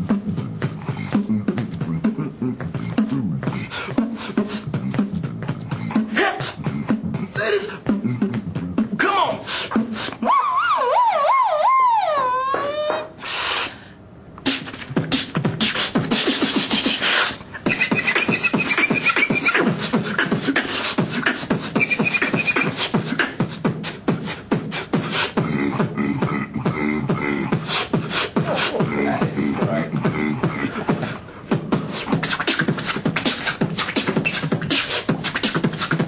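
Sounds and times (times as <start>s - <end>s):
man beatboxing: 0.0s - 12.0s, 14.4s - 36.0s
low vocal line: 0.0s - 13.1s, 25.3s - 32.5s.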